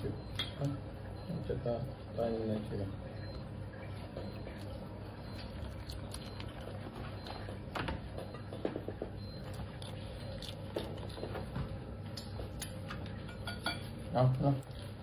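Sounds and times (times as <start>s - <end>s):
steady low hum: 0.0s - 15.0s
animals crunching vegetables: 3.8s - 15.0s.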